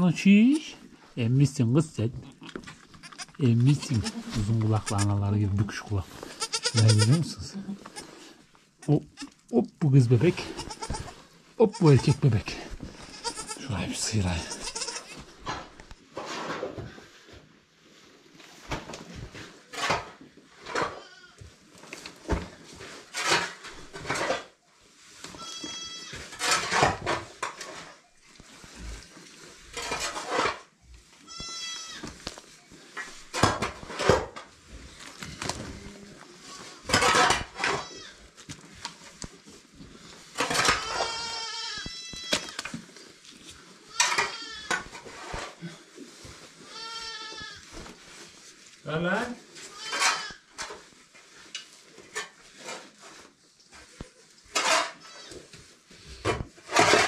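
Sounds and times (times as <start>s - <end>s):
tool scraping barn floor: 0.6s - 9.4s, 10.0s - 57.0s
goats bleating: 3.0s - 5.1s, 6.2s - 8.2s, 10.4s - 13.7s, 14.3s - 15.2s.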